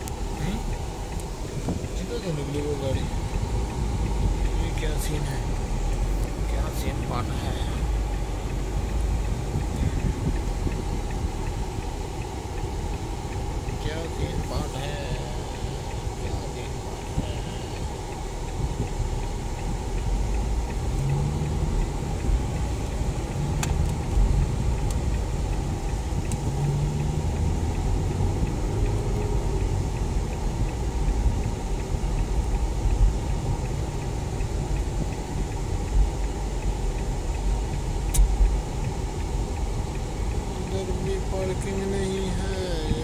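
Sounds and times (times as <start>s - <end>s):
car engine and road rumble: 0.0s - 43.0s
sharp clicks: 36.2s - 39.0s.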